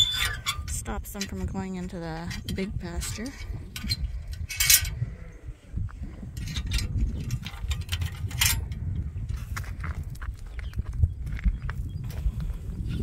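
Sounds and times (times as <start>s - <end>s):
metal gate latch clanking: 0.0s - 1.4s, 2.3s - 5.0s.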